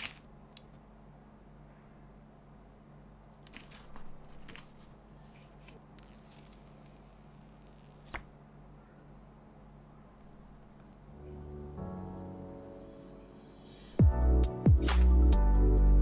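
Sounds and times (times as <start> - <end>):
paper rustling and peeling: 3.4 - 8.2.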